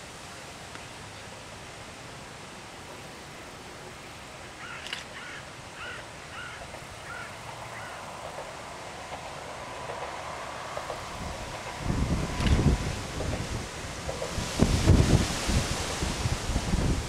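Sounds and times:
steady outdoor hiss: 0.0 - 17.0
crow cawing: 4.6 - 8.0.

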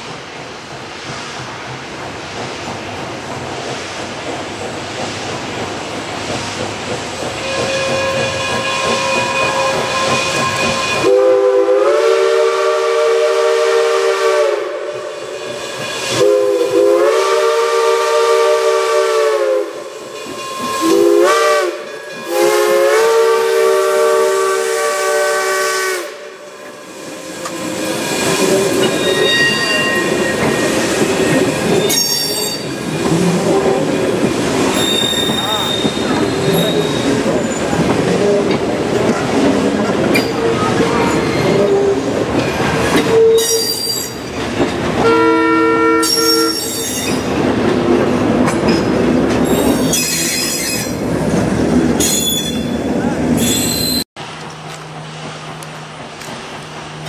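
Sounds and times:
train coaches rolling on rails: 0.0 - 57.0
steam locomotive whistle blasts: 7.4 - 26.4, 27.2 - 32.7, 34.7 - 37.2, 43.0 - 44.2, 45.0 - 47.2.

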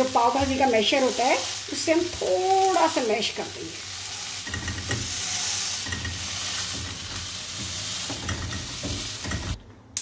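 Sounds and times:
peas sizzling in oil: 0.0 - 9.6
masher tapping and scraping pan: 4.4 - 9.6.

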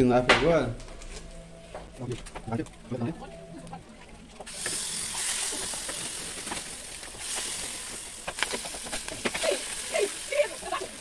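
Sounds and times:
spinach crackling in oil: 4.4 - 11.0
hot oil sizzling in a pan: 4.5 - 11.0.

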